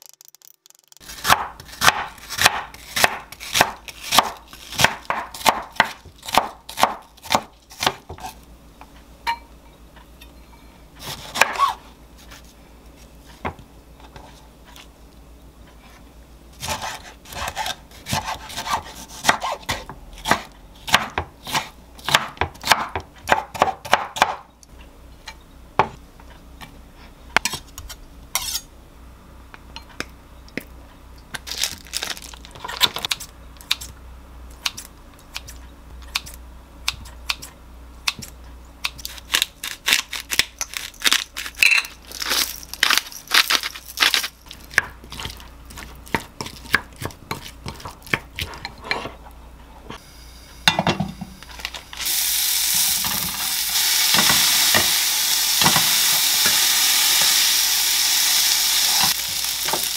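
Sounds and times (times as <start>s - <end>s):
knife chopping on wooden board: 1.2s - 8.3s, 16.6s - 24.4s.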